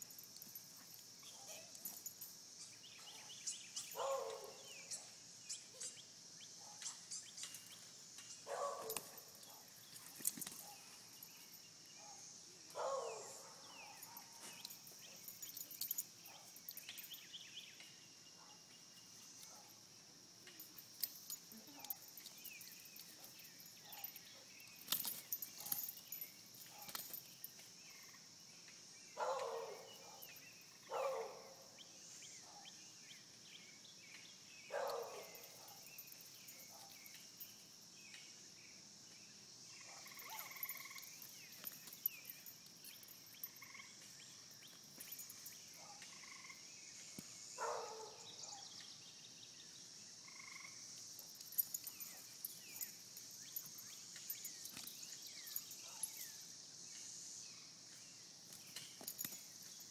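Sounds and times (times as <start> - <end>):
crickets and insects chirping: 0.0 - 59.9
short loud insect calls: 0.0 - 59.9
clicks and rustles: 7.4 - 10.7.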